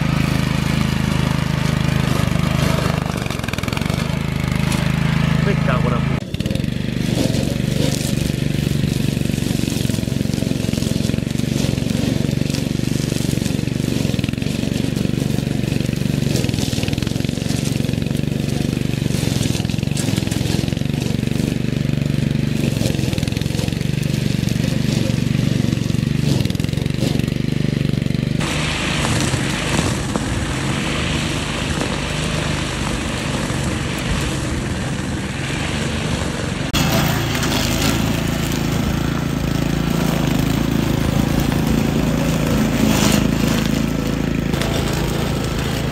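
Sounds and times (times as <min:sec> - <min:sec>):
string trimmer engine running: 0:00.0 - 0:45.9
trimmer line cutting vegetation: 0:00.0 - 0:45.9.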